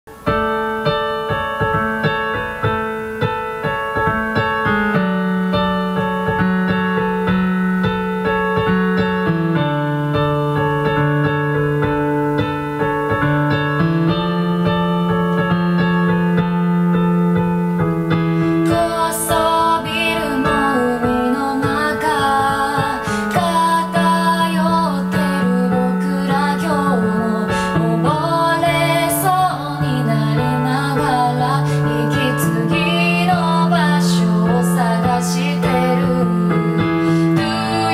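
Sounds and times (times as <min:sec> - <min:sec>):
piano chords: 0:00.1 - 0:37.9
woman singing: 0:18.5 - 0:37.9.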